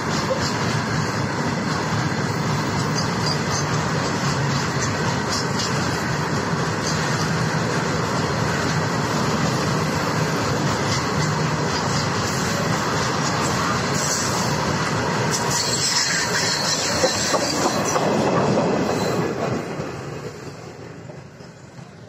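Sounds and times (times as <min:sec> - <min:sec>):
train wheels rolling on rails: 0:00.0 - 0:22.0.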